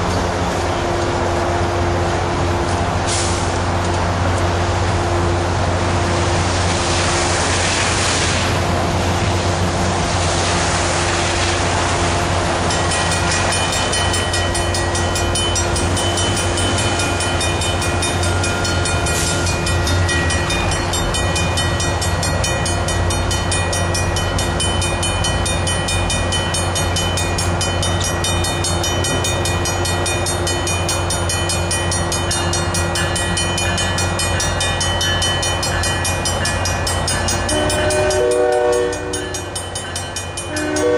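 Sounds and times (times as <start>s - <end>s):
locomotive engine rumble: 0.0s - 40.9s
hiss: 6.4s - 8.8s.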